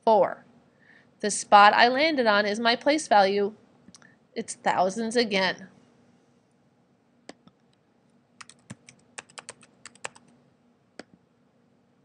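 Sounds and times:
keyboard typing: 8.4s - 10.3s.

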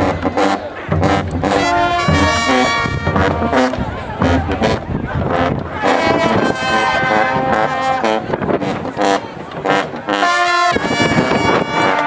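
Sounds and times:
drum hits: 0.0s - 5.8s
brass sustained chords: 0.0s - 12.0s
sousaphones: 0.0s - 12.0s.

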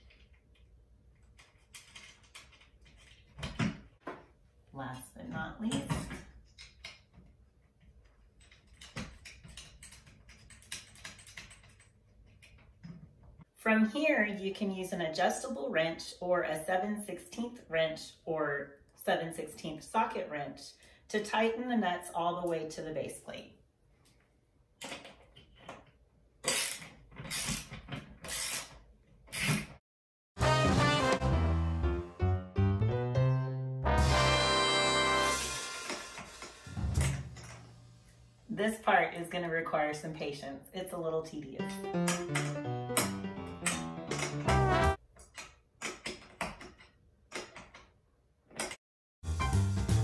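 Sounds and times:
brass-led background music: 30.4s - 37.4s, 42.1s - 45.0s, 49.3s - 50.0s.

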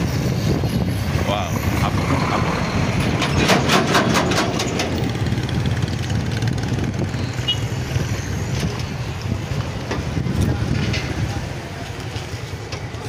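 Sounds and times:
road traffic rumble: 0.0s - 13.0s.

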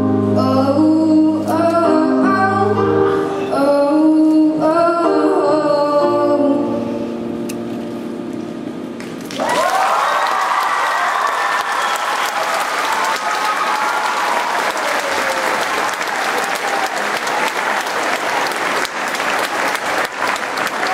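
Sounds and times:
audience clapping: 9.0s - 20.9s
whooping cheers: 9.4s - 19.0s, 20.6s - 20.9s.

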